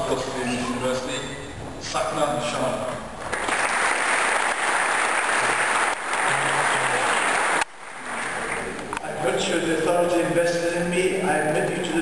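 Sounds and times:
audience applauding in a hall: 3.2 - 9.0.

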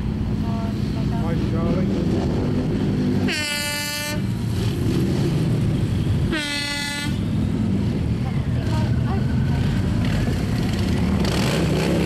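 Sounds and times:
motorcycles rumbling past: 7.6 - 12.0.

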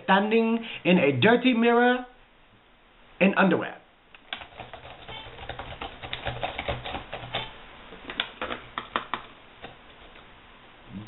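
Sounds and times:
laptop keyboard typing: 4.2 - 7.5.

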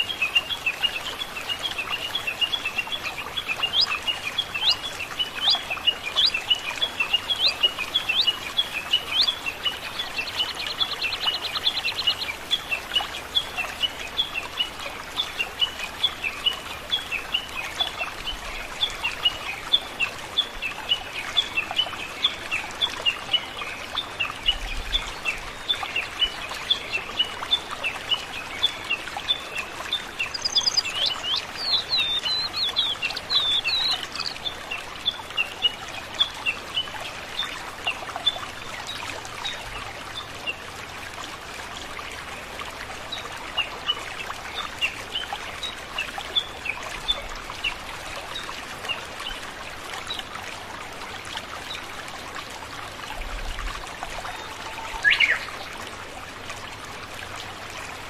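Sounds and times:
flowing water: 0.0 - 58.0
small birds chirping: 30.0 - 34.5.

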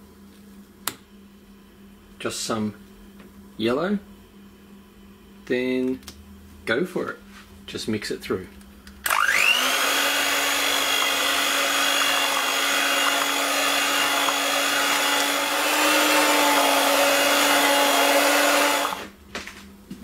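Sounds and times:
electric hand mixer whining: 9.1 - 19.1.

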